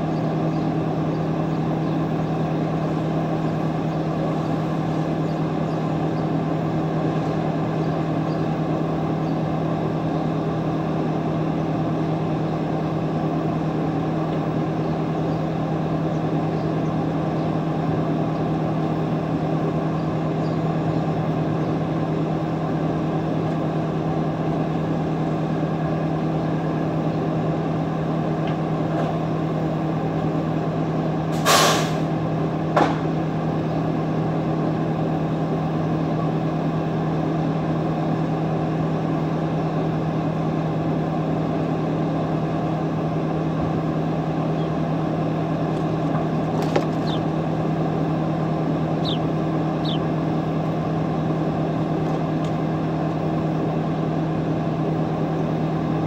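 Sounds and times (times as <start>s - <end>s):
low mechanical hum: 0.0s - 56.0s
short sharp hiss: 31.4s - 32.1s.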